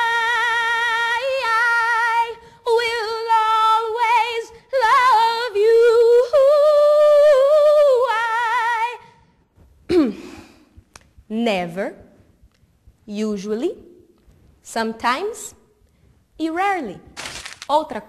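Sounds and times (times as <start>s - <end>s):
woman singing with vibrato: 0.0s - 9.2s.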